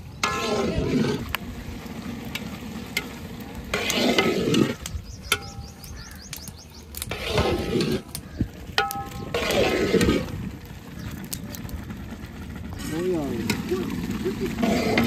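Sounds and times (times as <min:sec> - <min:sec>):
ladle scraping through rice: 0:00.1 - 0:04.8, 0:06.9 - 0:08.4, 0:09.0 - 0:10.5, 0:13.4 - 0:15.0
metallic ring of ladle on pot: 0:08.8 - 0:09.3.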